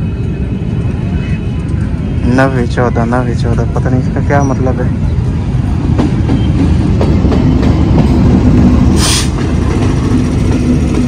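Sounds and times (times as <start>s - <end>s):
diesel locomotive rumble: 0.0s - 11.0s
short sharp hiss: 9.0s - 9.4s.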